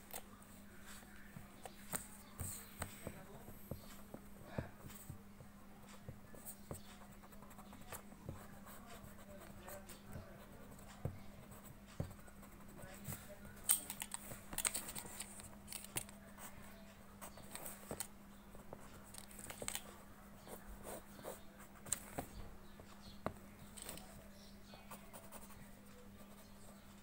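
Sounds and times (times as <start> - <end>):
pencil scratching on paper: 6.3 - 13.4, 18.7 - 22.3, 24.9 - 26.8.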